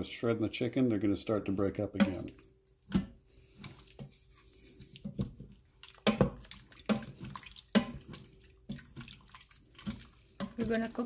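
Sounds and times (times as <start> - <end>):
spoon squelching in thick stew: 1.5 - 11.0
spoon scraping a metal pot: 3.5 - 8.8.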